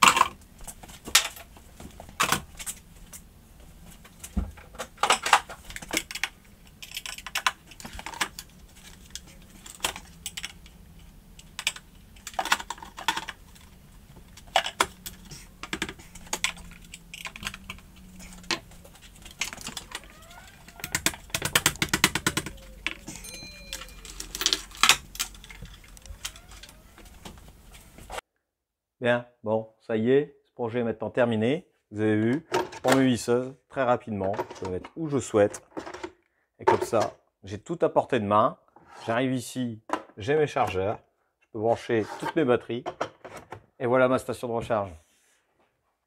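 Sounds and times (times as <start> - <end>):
rattling clicks: 4.8 - 28.2
plastic knocking on wood: 19.5 - 23.1.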